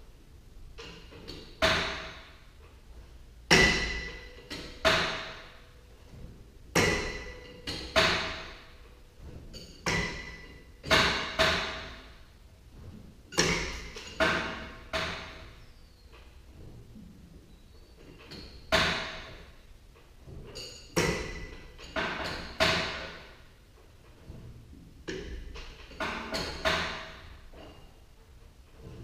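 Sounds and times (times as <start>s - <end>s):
steel striking steel clanks: 3.5s - 5.7s, 6.8s - 8.8s, 9.5s - 12.0s, 13.3s - 15.4s.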